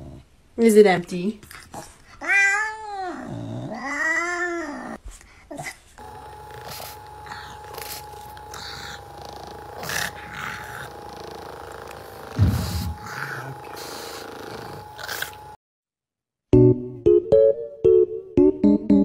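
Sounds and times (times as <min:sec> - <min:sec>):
electric massager humming: 0:06.0 - 0:15.6.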